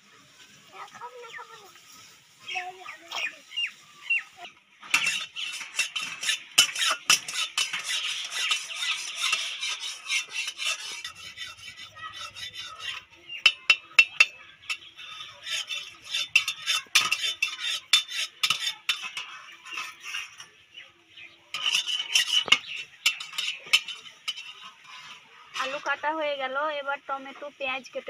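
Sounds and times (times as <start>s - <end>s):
potato scraped against blade: 4.8s - 20.5s, 21.6s - 25.9s.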